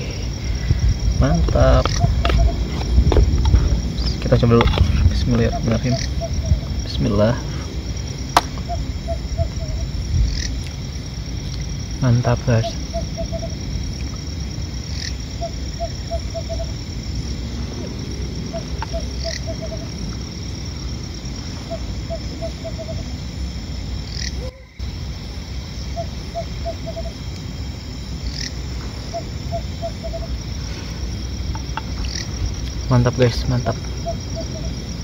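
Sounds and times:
low rumble: 0:00.0 - 0:24.1
high insect drone: 0:00.0 - 0:35.0
falling chirps: 0:08.2 - 0:10.0, 0:15.0 - 0:23.1, 0:28.3 - 0:32.9, 0:33.6 - 0:35.0
animal call of low notes: 0:08.6 - 0:10.6, 0:14.8 - 0:23.2, 0:33.6 - 0:35.0.

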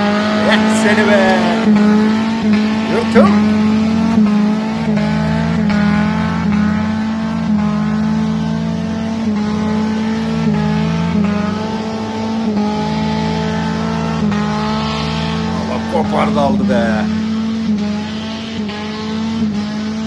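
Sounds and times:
engine revving high: 0:00.0 - 0:20.0.

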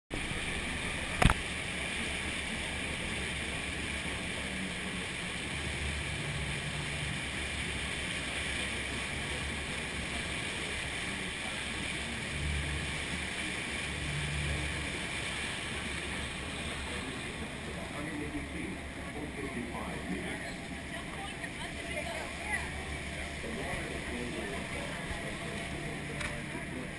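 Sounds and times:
boat engine rushing: 0:00.1 - 0:26.9
churning wake: 0:00.1 - 0:26.9.

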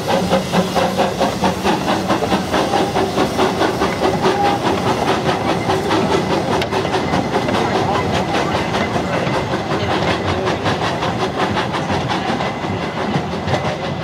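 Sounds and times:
carriages rattling on rails: 0:00.0 - 0:14.0
steam hissing: 0:00.0 - 0:14.0
steam locomotive exhaust chuffs: 0:00.0 - 0:14.0.

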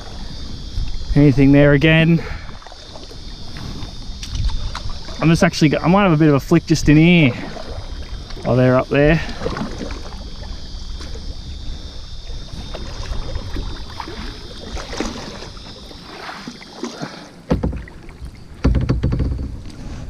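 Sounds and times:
wind rumbling on microphone: 0:00.0 - 0:16.6, 0:17.5 - 0:20.0
loud knocks: 0:17.5 - 0:18.0, 0:18.6 - 0:19.6.

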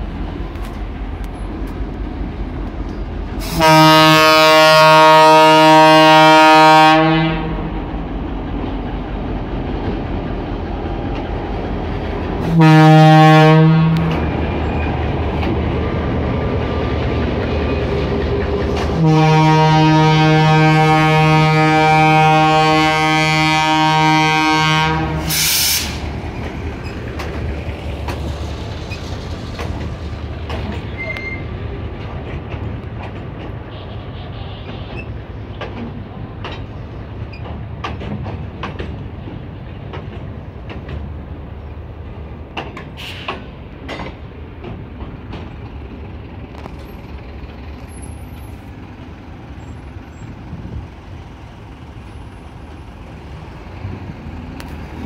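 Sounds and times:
diesel locomotive engine running: 0:00.0 - 0:55.0
train rolling by: 0:00.0 - 0:55.0
locomotive air horn blasts: 0:03.4 - 0:07.7, 0:12.4 - 0:14.2, 0:18.9 - 0:26.0, 0:33.7 - 0:35.0.

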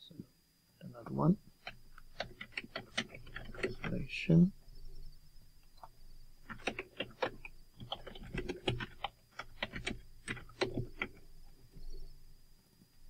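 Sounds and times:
typing on computer keyboard: 0:01.6 - 0:04.0, 0:05.8 - 0:11.3.

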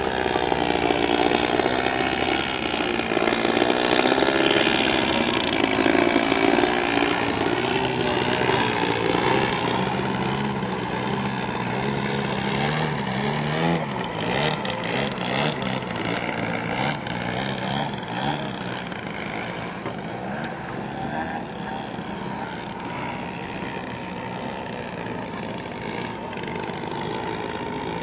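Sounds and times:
model airplane engines droning: 0:00.0 - 0:28.0.

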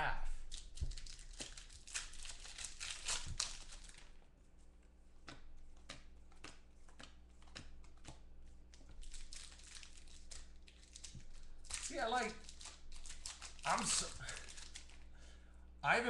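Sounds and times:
plastic wrapper crinkling: 0:00.4 - 0:04.3, 0:08.6 - 0:15.3
cards being flicked: 0:05.2 - 0:09.3.

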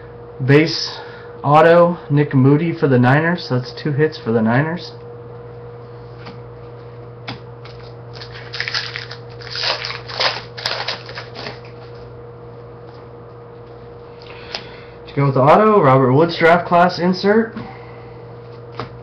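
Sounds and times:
steady low hum: 0:00.0 - 0:19.0
card pack rustling and crinkling: 0:07.7 - 0:11.9.

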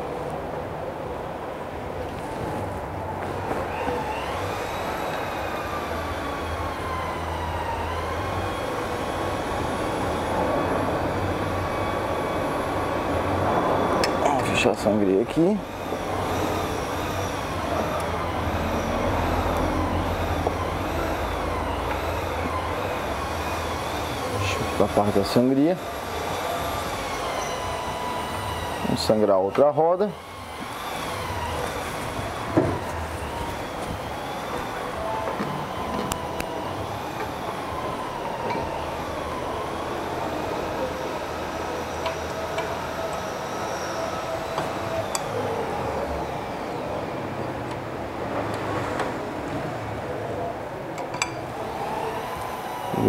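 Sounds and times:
faint high whine: 0:00.0 - 0:47.7
machine drone with low hum: 0:00.6 - 0:25.2.

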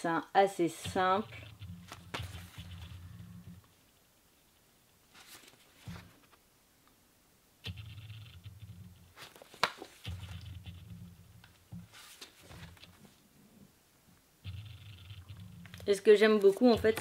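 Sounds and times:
low rumbling handling noise: 0:00.9 - 0:03.8, 0:14.5 - 0:15.9
page and cover rustling: 0:05.1 - 0:06.4, 0:09.1 - 0:10.6, 0:11.7 - 0:13.2.

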